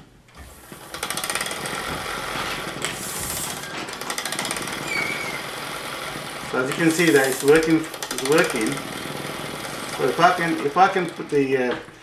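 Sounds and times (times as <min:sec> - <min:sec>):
model engine clattering: 0:00.8 - 0:11.9
air hiss: 0:02.9 - 0:03.6, 0:06.7 - 0:07.8.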